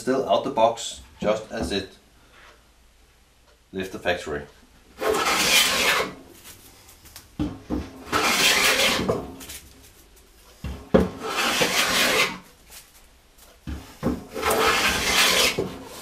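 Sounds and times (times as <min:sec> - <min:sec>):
hand plane hissing strokes: 0:05.0 - 0:07.0, 0:08.0 - 0:09.4, 0:10.6 - 0:12.5, 0:13.8 - 0:16.0
plane knocking down on wood: 0:07.4 - 0:09.4, 0:10.7 - 0:12.3.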